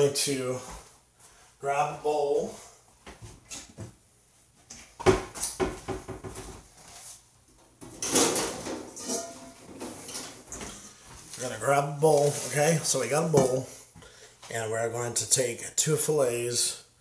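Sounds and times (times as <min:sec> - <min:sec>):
steel bowls clattering: 0:08.0 - 0:10.4.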